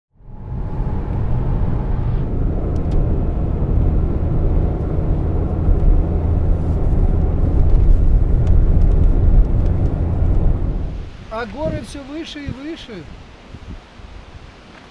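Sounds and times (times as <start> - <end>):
car cabin road rumble: 0.2 - 11.8.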